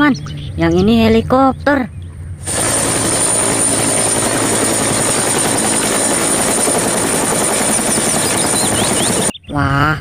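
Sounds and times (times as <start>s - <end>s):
helicopter rotor beating: 2.4s - 9.4s.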